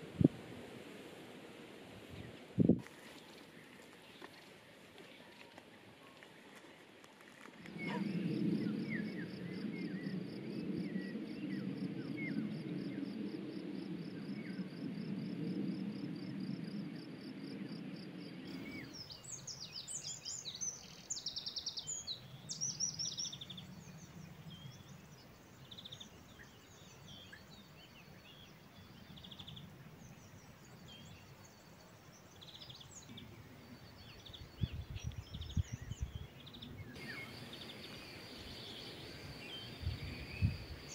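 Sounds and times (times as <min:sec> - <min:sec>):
songbird singing: 0:02.0 - 0:15.0, 0:16.2 - 0:40.9
bird chirps: 0:18.5 - 0:40.9.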